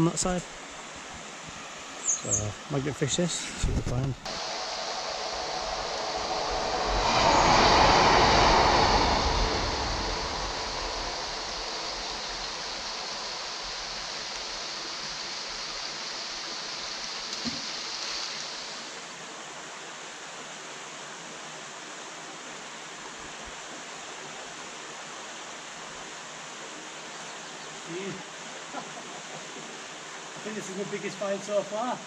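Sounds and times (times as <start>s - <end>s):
passing train: 4.3s - 15.2s
water rushing over weir: 4.3s - 19.4s.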